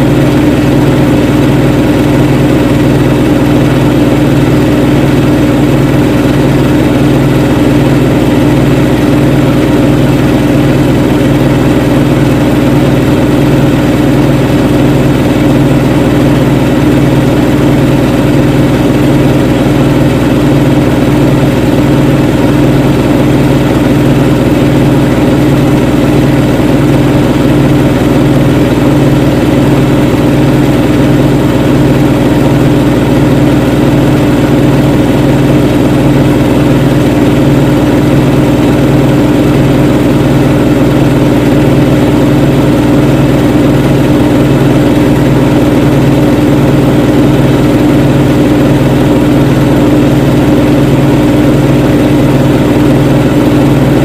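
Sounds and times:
washing machine motor hum: 0:00.0 - 0:54.0.

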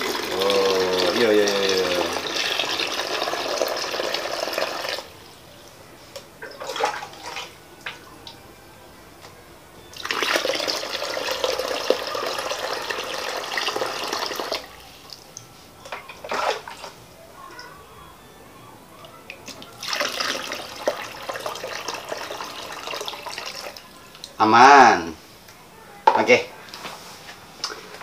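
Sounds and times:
water pouring onto gravel: 0:00.0 - 0:05.1.

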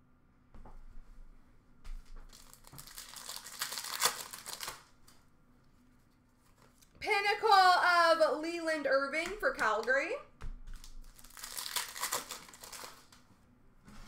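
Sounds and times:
wrapper tearing and crinkling: 0:02.3 - 0:05.2, 0:10.7 - 0:13.2.

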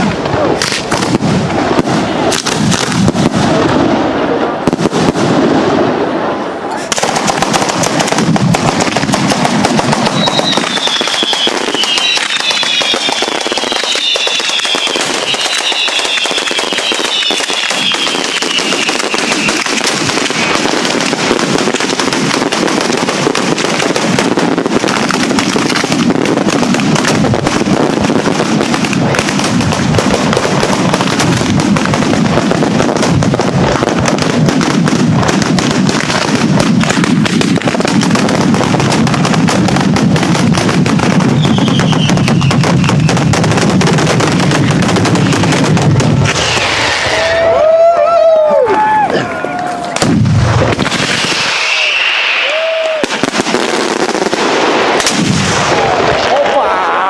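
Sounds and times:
firecracker chain crackling: 0:06.8 - 0:47.8
falling whistles: 0:10.1 - 0:19.6, 0:41.4 - 0:43.0, 0:51.4 - 0:52.8.

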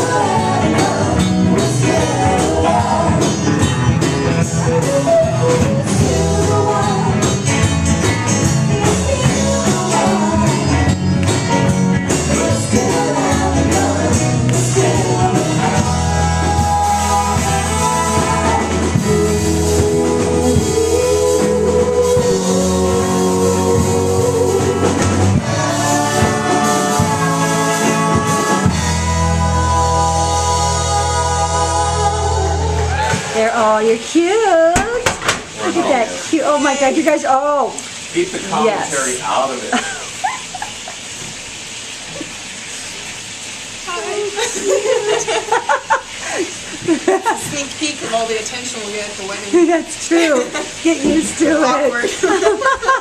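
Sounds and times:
live band playing: 0:00.0 - 0:39.2.

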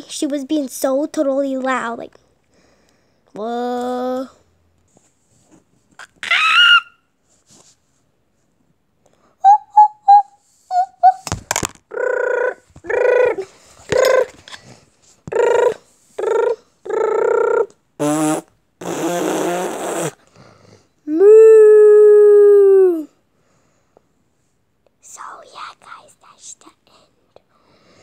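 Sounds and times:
high squeaky voice: 0:06.0 - 0:07.0, 0:10.7 - 0:11.2, 0:11.9 - 0:14.4.

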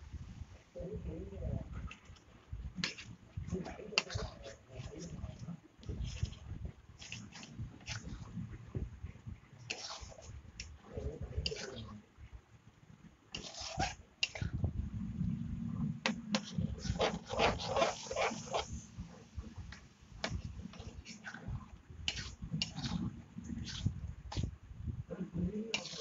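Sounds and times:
gravy bubbling: 0:01.5 - 0:12.1, 0:13.3 - 0:26.0
metal spatula scraping pan: 0:02.8 - 0:05.4, 0:09.7 - 0:10.3, 0:11.4 - 0:11.8, 0:13.4 - 0:14.5, 0:16.3 - 0:18.9, 0:22.1 - 0:24.5, 0:25.7 - 0:26.0.

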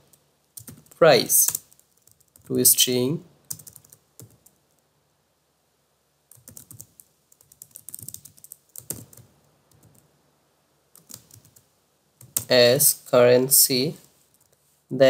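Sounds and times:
typing on a computer keyboard: 0:00.0 - 0:02.5, 0:03.5 - 0:04.8, 0:06.3 - 0:10.1, 0:11.0 - 0:12.5.

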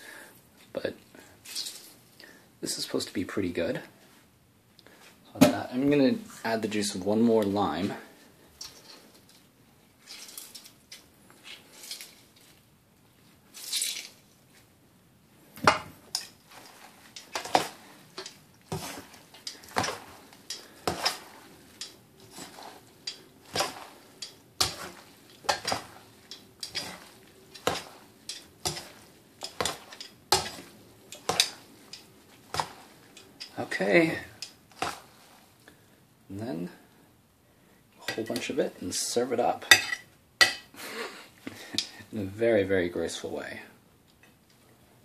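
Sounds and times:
metal tongs clinking on bowl: 0:18.2 - 0:33.6.

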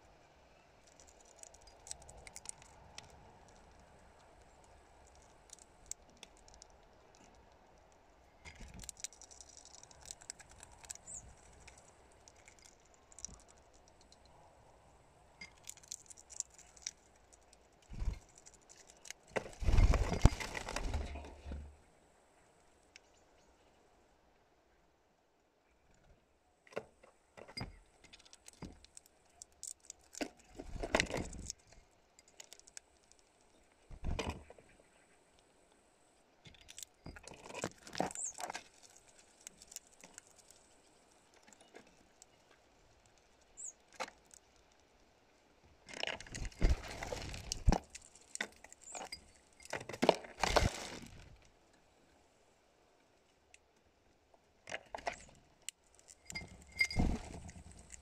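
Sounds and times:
birds clicking on plastic: 0:00.7 - 0:14.4, 0:36.5 - 0:44.7
claws scrabbling: 0:00.8 - 0:14.4, 0:15.4 - 0:21.7, 0:28.0 - 0:33.7, 0:36.5 - 0:44.9, 0:45.9 - 0:51.4
wings fluttering: 0:15.5 - 0:21.8, 0:46.2 - 0:49.7, 0:56.2 - 0:58.0.

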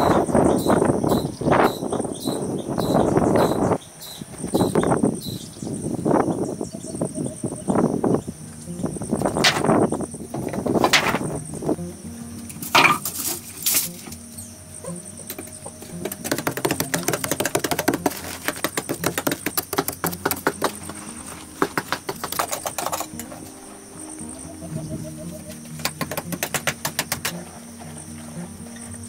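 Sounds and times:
soft background music: 0:06.7 - 0:29.0
rapid light tapping and clicking: 0:15.3 - 0:23.4.

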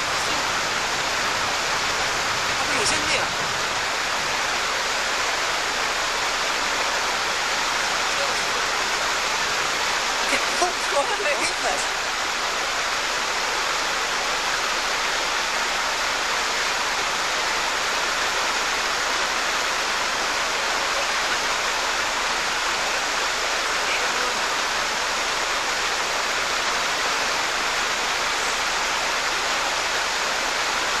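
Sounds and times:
whitewater rushing over rocks: 0:00.0 - 0:31.0.

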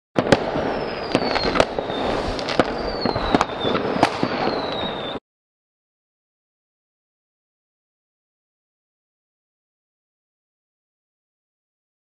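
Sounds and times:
fireworks bangs: 0:00.2 - 0:05.2
fireworks crackling: 0:00.2 - 0:05.2
falling whistles: 0:00.6 - 0:05.2.

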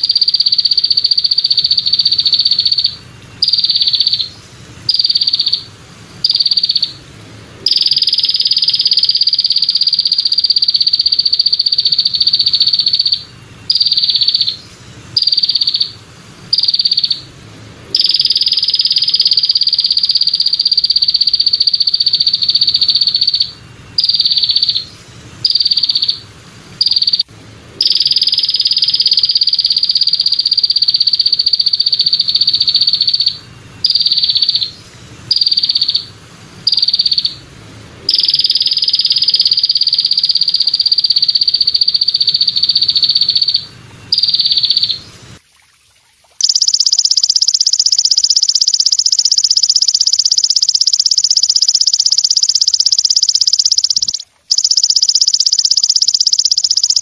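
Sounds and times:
katydid buzzing: 0:46.4 - 0:57.0.

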